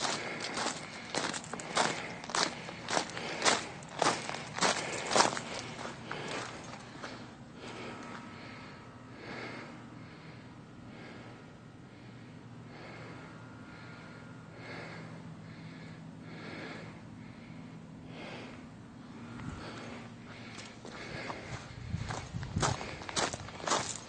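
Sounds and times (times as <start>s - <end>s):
footsteps on gravel: 0.0s - 8.2s, 19.6s - 24.0s
steady low hum: 0.0s - 24.0s.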